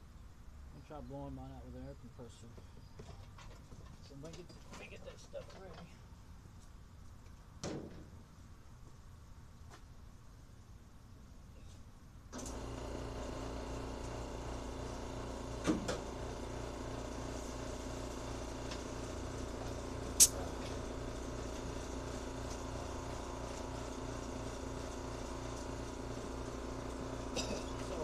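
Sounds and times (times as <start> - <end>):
air compressor motor humming: 12.4 - 28.0.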